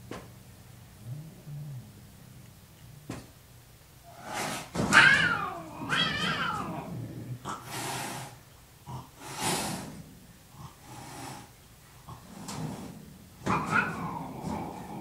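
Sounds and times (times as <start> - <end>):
cats hissing: 4.0 - 15.0
cats yowling: 4.1 - 7.0, 13.4 - 15.0.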